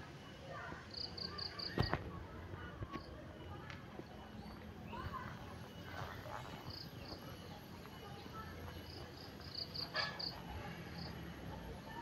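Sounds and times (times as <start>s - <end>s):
faint outdoor background noise: 0.0s - 12.0s
insect chirping: 0.9s - 1.8s, 5.0s - 11.4s.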